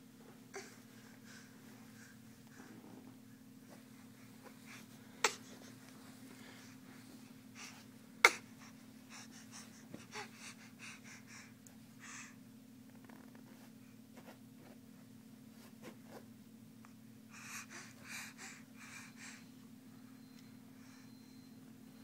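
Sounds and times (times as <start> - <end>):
baby breathing: 0.5 - 2.8, 3.7 - 12.4, 17.3 - 19.4.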